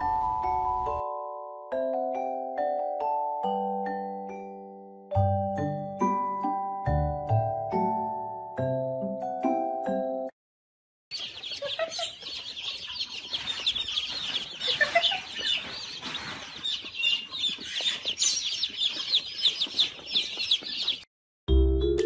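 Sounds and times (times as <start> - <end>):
baby chicks peeping: 11.1 - 21.1.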